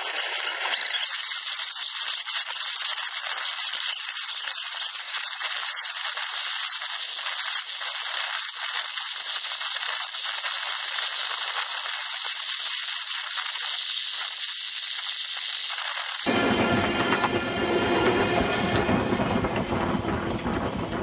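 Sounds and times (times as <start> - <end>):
model train rattling on track: 16.1 - 21.0.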